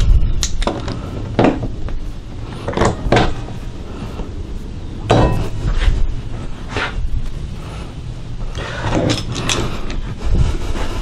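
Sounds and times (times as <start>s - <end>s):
knocks and clunks on workbench: 0.7s - 1.7s.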